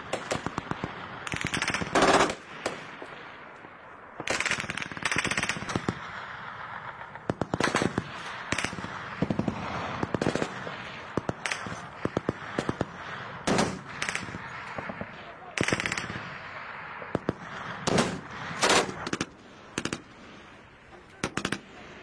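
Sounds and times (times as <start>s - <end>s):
automatic gunfire bursts: 0.1s - 2.8s, 4.2s - 6.0s, 7.0s - 16.2s, 17.1s - 20.0s
single gunshots: 6.9s - 20.1s.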